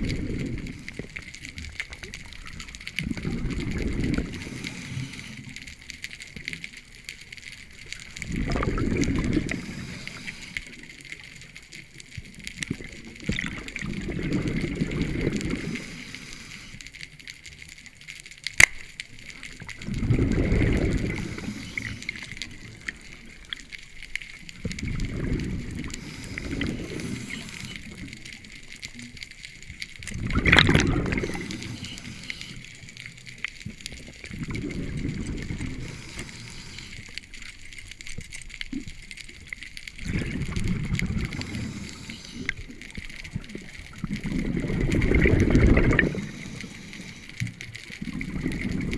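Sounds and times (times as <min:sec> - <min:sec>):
diver exhaling bubbles: 0:03.0 - 0:04.9, 0:08.2 - 0:10.3, 0:12.8 - 0:16.0, 0:19.8 - 0:22.0, 0:24.7 - 0:27.9, 0:30.1 - 0:32.1, 0:34.2 - 0:36.7, 0:40.0 - 0:42.5, 0:43.4 - 0:46.8, 0:48.0 - 0:48.9.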